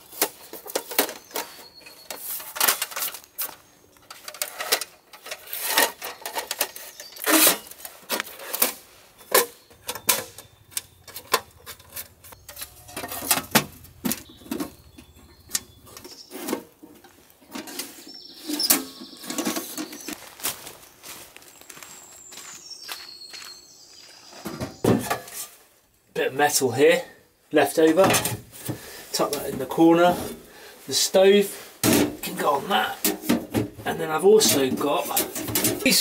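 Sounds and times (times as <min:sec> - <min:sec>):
metal stove parts clicking and clanking: 0:00.0 - 0:20.2, 0:27.9 - 0:28.5, 0:33.0 - 0:33.8, 0:34.4 - 0:36.0.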